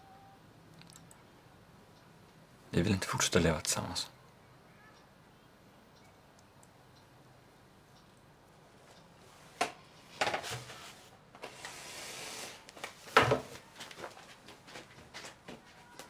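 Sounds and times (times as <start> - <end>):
wooden chair knocking and scraping: 13.1 - 13.6.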